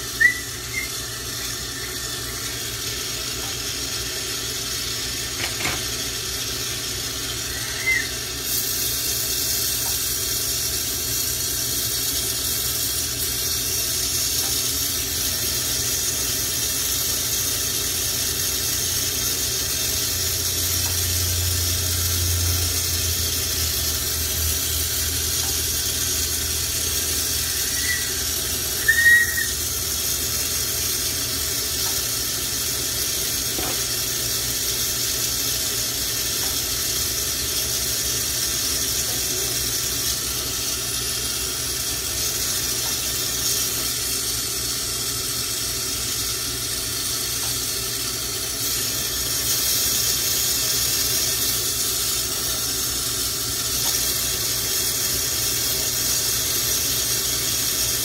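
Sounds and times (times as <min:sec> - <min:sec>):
torch burning with steady hiss: 0:00.0 - 0:58.0
high squeak: 0:00.2 - 0:01.1, 0:07.5 - 0:08.2, 0:27.4 - 0:29.6.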